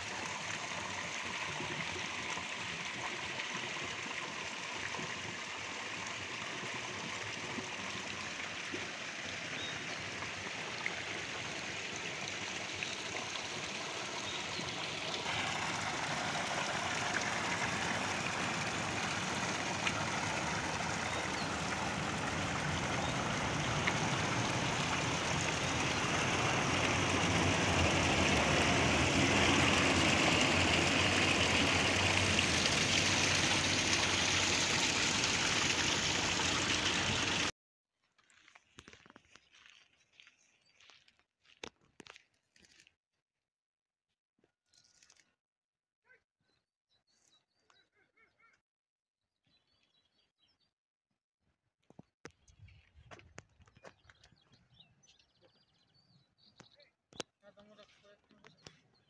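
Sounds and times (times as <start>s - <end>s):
running water rushing: 0.0s - 37.5s.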